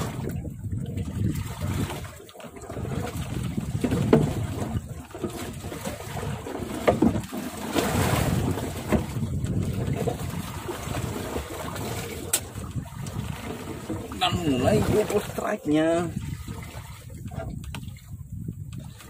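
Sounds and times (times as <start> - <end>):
water against boat hull: 0.0 - 19.0
wind on microphone: 0.0 - 19.0.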